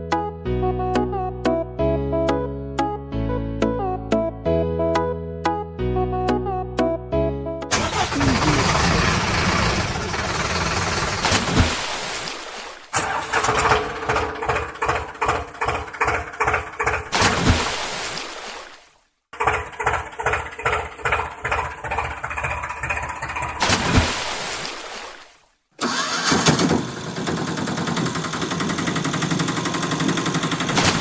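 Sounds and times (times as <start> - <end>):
tractor engine chugging: 7.7 - 11.2, 13.0 - 17.1, 19.4 - 23.6, 25.8 - 30.8.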